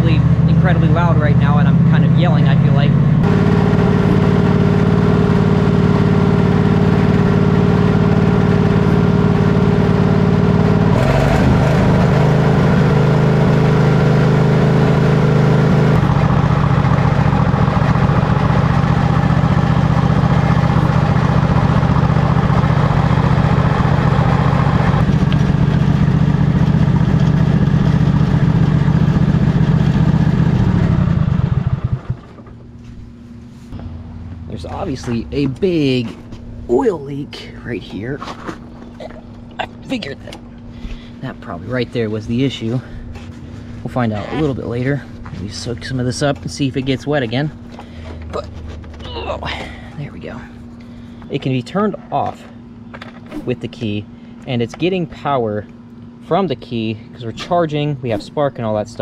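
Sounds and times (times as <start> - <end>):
lawn tractor engine running: 0.0 - 32.6.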